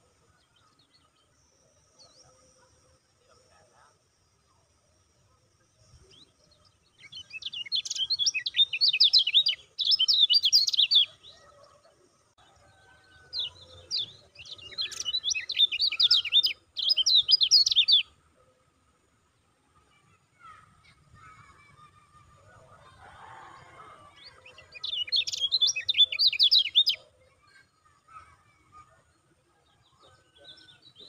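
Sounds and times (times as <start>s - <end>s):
bird chattering song: 6.1s - 11.7s, 13.3s - 18.2s, 24.2s - 28.3s.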